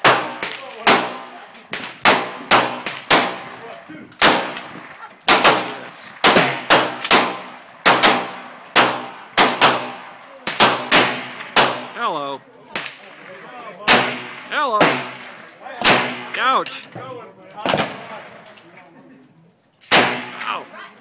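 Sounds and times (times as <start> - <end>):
rapid rifle gunfire: 0.0 - 3.5, 5.3 - 11.9.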